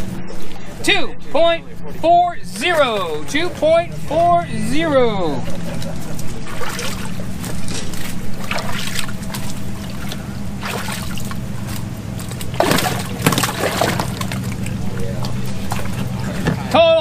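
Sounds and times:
steady low hum: 0.0 - 17.0
water splashing in a tub: 5.7 - 16.7.

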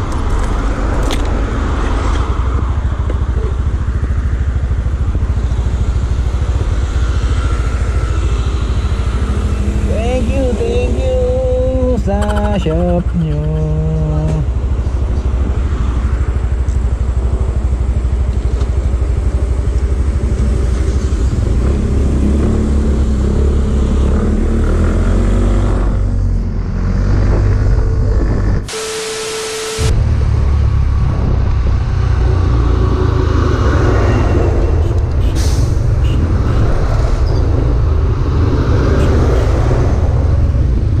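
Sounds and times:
fluttering wind rumble: 18.8 - 28.7.

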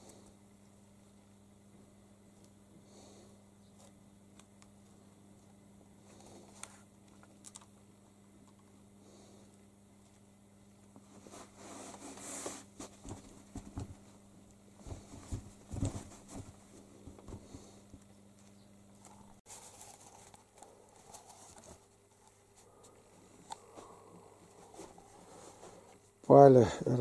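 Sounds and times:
low steady hum: 0.0 - 27.0
kitten thumping and scuffling: 11.4 - 14.2, 14.8 - 17.8.

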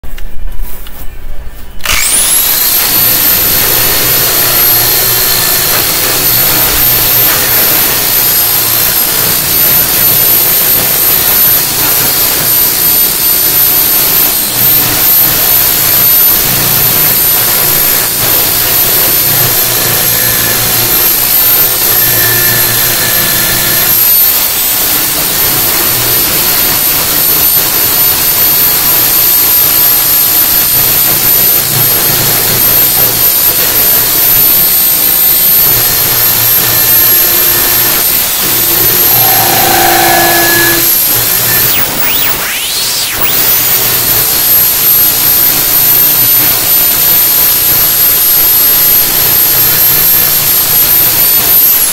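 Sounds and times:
electric drill motor whine: 1.8 - 51.9
sanding disc hissing on metal: 37.5 - 41.7.

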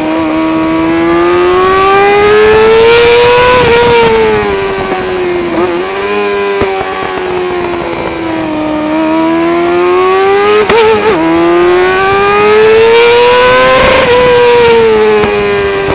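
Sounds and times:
motorcycle engine howling at high revs: 0.0 - 15.9.

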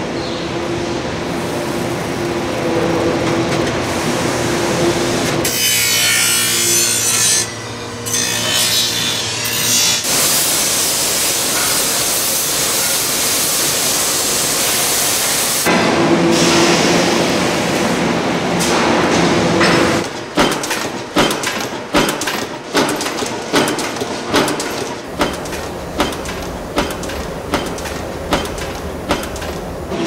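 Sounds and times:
industrial machinery hum: 0.0 - 30.0
power press stamping thumps: 19.6 - 29.8.

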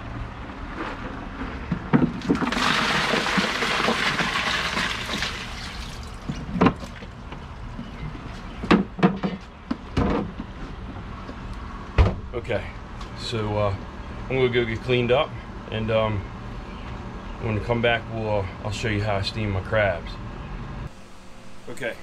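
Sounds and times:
ice pouring into a cooler: 2.1 - 6.3.

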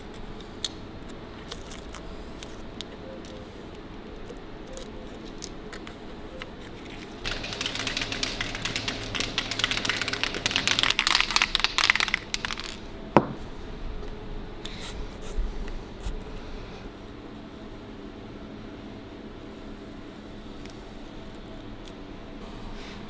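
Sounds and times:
masking tape crinkling and tearing: 0.0 - 3.4, 4.2 - 12.8.

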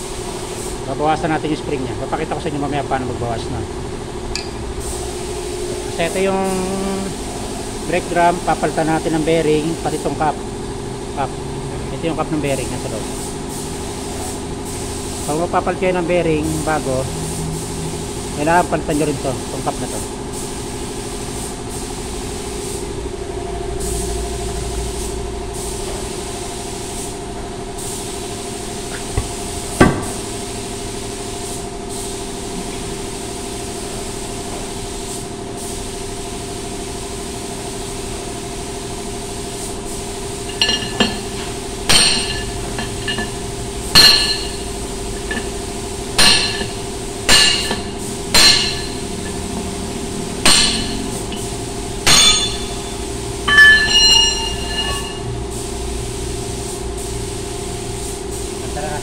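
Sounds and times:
steady engine hum: 0.9 - 15.2, 38.8 - 56.6
hammer blows on metal bar: 52.1 - 52.8.

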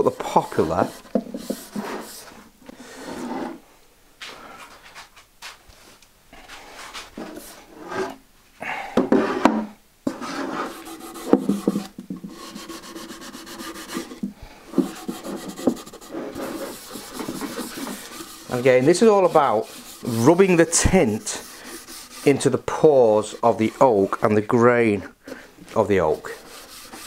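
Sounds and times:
sponge scrubbing wood: 0.0 - 2.4, 10.1 - 14.2, 14.8 - 24.5, 25.3 - 27.0.

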